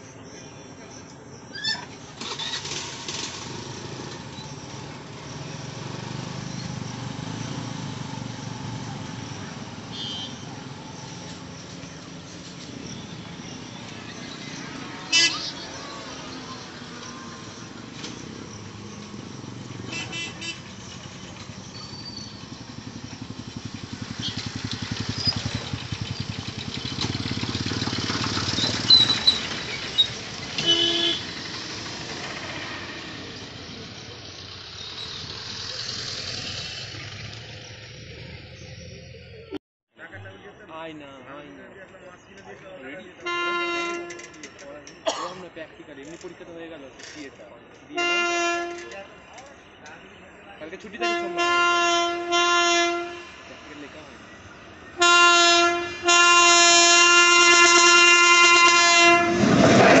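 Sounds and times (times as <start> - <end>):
motorcycle engines idling and pulling away: 0.0 - 60.0
horn beep: 9.3 - 11.3, 12.8 - 16.3, 19.6 - 21.0, 28.2 - 31.5, 43.1 - 44.5, 51.0 - 53.6.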